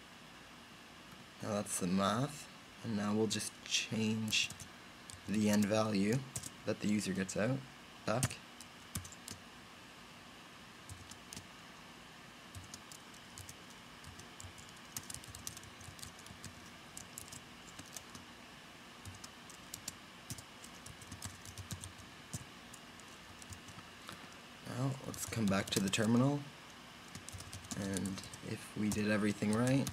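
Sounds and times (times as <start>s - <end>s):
typing on computer keyboard: 6.3s - 6.5s, 8.2s - 9.4s, 10.9s - 11.4s, 12.5s - 18.2s, 19.0s - 23.7s, 25.2s - 26.2s, 27.1s - 29.9s.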